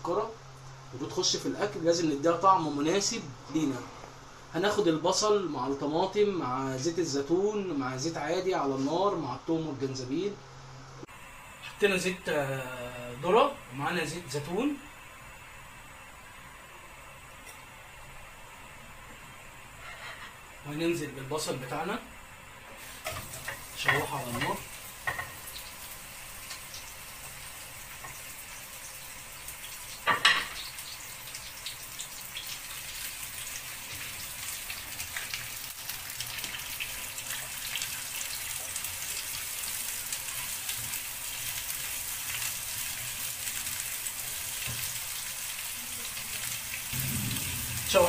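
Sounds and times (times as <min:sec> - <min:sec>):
onions sizzling in a frying pan: 0:11.0 - 0:48.0
sharp knock: 0:47.0 - 0:48.0.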